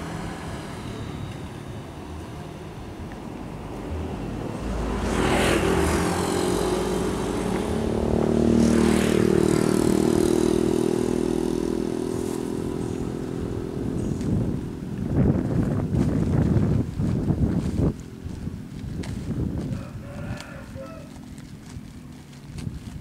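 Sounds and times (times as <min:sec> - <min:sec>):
small engine running: 0:00.0 - 0:23.0.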